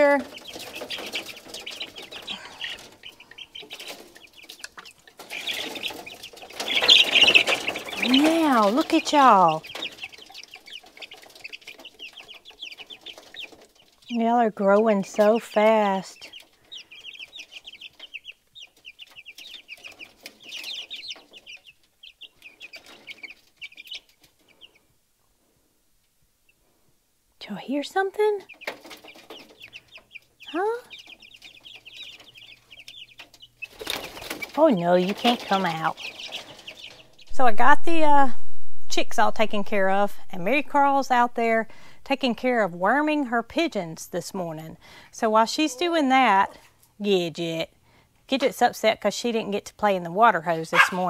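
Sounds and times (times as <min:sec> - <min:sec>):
chicks peeping: 0:00.0 - 0:25.0, 0:27.5 - 0:38.3, 0:50.5 - 0:51.0.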